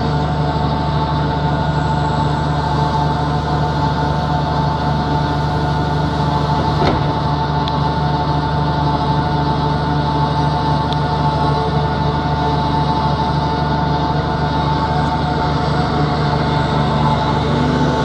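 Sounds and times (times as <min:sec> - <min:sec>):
mixer machinery hum and whine: 0:00.0 - 0:18.0
tractor engine running: 0:00.0 - 0:18.0
short knock: 0:06.5 - 0:07.4.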